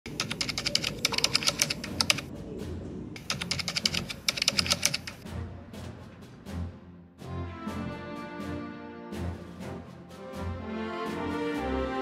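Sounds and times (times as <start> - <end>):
keyboard typing: 0.1 - 2.3, 3.2 - 5.2.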